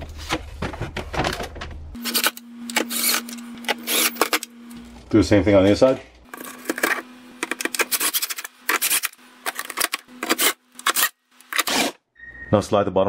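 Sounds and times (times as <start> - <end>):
cordless drill driving screws: 2.1 - 4.5.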